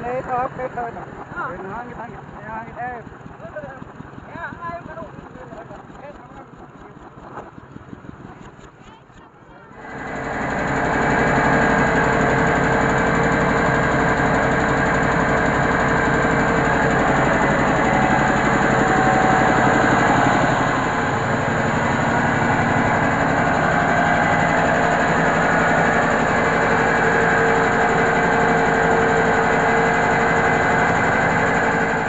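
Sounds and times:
rice mill machinery drone: 0.0s - 8.8s, 9.6s - 32.0s.

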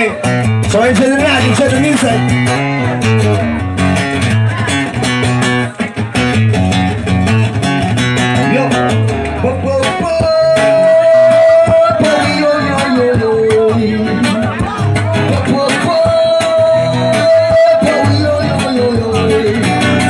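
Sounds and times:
acoustic guitar through pa: 0.0s - 20.0s.

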